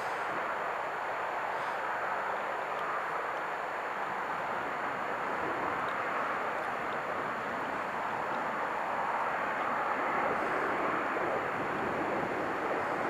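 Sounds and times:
distant steam train rushing: 0:00.0 - 0:02.3.

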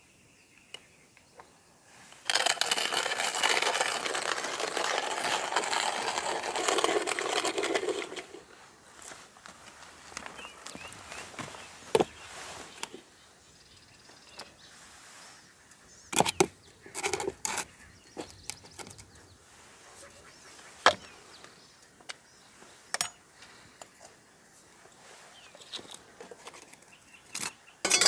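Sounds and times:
clatter of coffee gear: 0:02.1 - 0:08.4.

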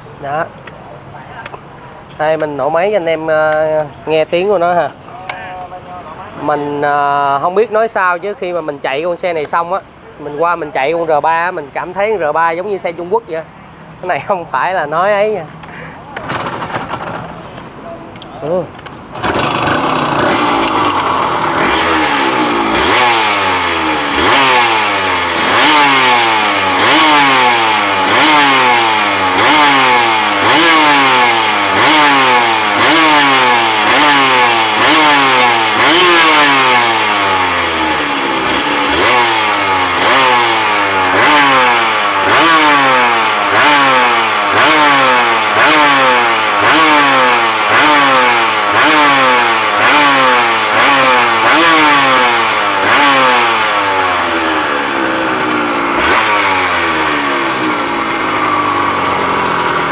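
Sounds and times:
motorcycle engine revving: 0:15.7 - 0:17.5, 0:18.5 - 0:59.9.

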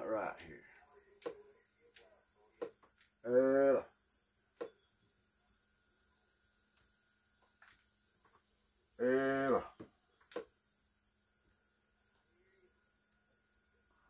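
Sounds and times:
man speaking: 0:00.0 - 0:02.7
cricket chirping: 0:00.0 - 0:14.0.

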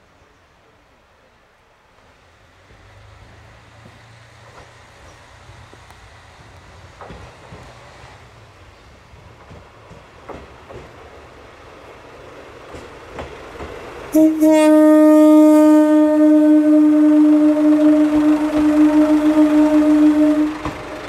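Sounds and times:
train horn blast: 0:14.1 - 0:21.0.

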